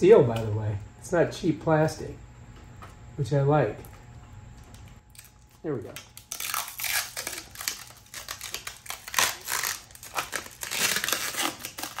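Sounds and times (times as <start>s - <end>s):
plastic wrap crinkling: 5.1s - 12.0s.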